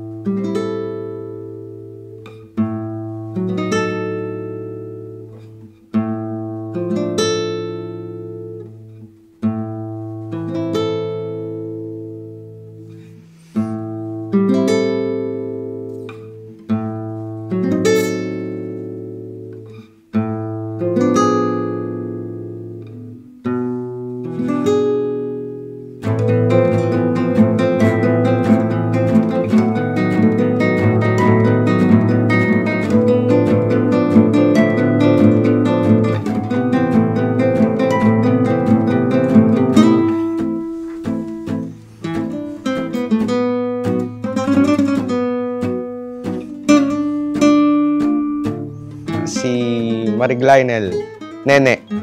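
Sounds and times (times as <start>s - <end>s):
slow acoustic guitar chords: 0.0s - 52.0s.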